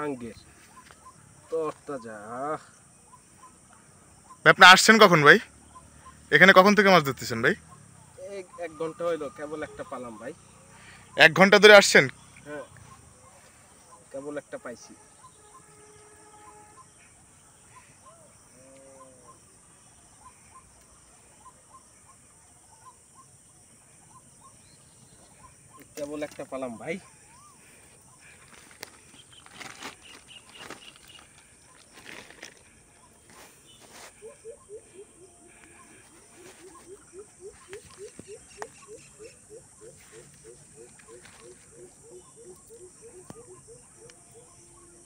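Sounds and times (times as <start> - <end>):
faint birdsong chirps: 0.0 - 45.0
bird call rising and falling: 28.2 - 44.5.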